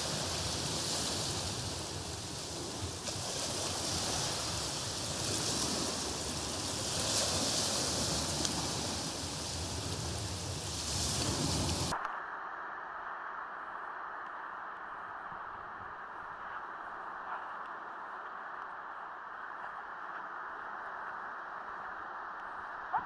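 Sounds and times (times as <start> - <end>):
steady rushing noise: 0.0 - 23.0
faint ticks: 17.3 - 20.3, 20.9 - 23.0.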